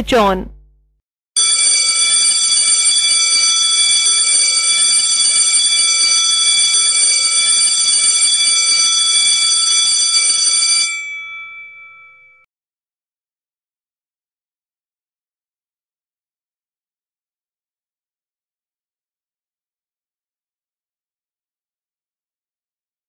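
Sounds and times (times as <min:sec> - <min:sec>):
electronic bell ringing: 0:01.4 - 0:12.5.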